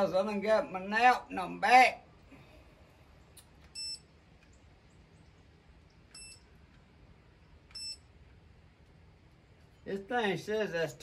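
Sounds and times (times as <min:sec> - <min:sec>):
thermometer short high beeps: 0:03.7 - 0:04.1, 0:06.1 - 0:06.5, 0:07.7 - 0:08.1.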